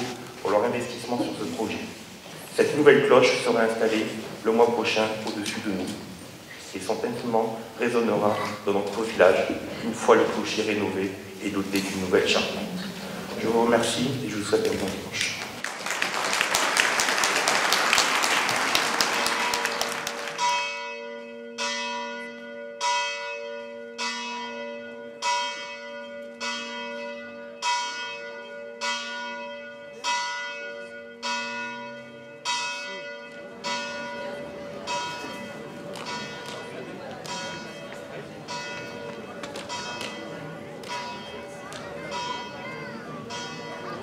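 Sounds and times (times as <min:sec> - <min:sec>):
church bell ringing: 0:00.0 - 0:06.0, 0:06.8 - 0:12.6, 0:19.1 - 0:44.0
applause: 0:14.7 - 0:20.5.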